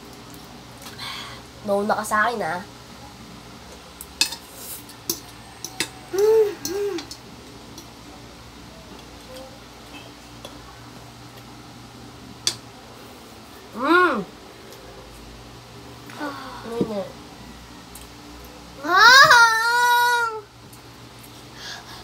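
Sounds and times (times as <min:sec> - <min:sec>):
person humming: 0:06.1 - 0:07.1.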